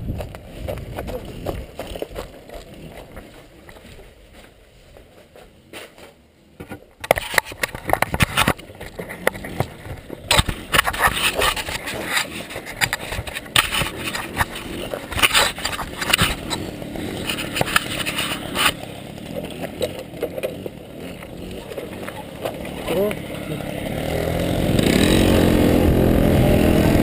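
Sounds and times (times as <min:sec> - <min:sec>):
camera handling noise: 0:10.3 - 0:16.6, 0:17.2 - 0:18.8.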